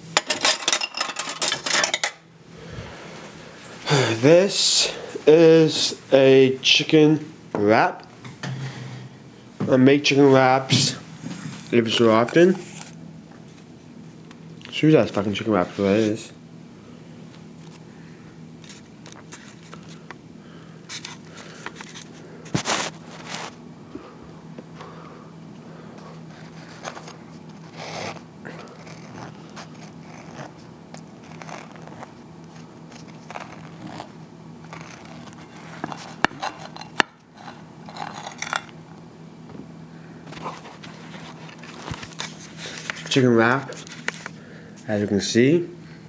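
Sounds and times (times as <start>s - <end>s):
low steady hum: 0.0s - 46.0s
knife cutting through a wrap: 26.4s - 30.6s, 33.0s - 36.8s.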